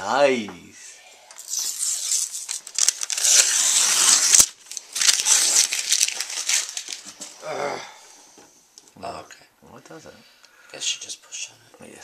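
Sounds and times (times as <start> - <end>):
plastic film crackling while peeled: 1.3 - 7.2.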